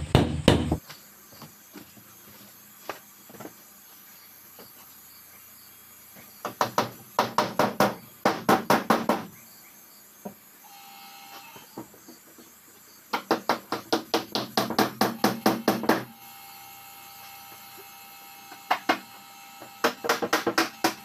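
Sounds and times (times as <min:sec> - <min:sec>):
hammer striking plywood: 0:00.0 - 0:00.8, 0:13.2 - 0:16.1, 0:19.8 - 0:21.0.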